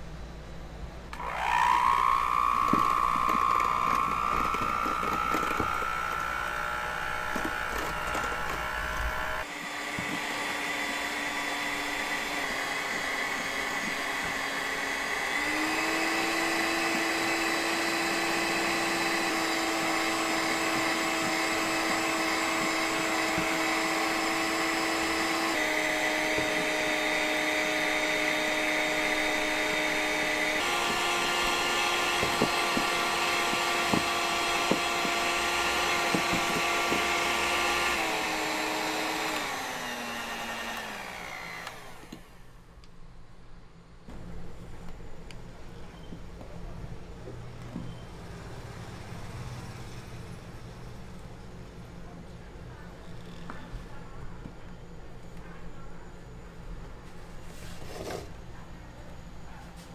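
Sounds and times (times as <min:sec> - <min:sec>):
electric hand mixer whining: 0:01.1 - 0:42.5.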